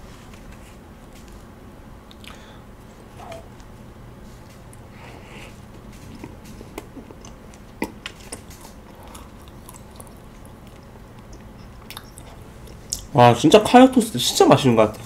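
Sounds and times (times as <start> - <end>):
person chewing crisp toast: 4.7 - 13.1.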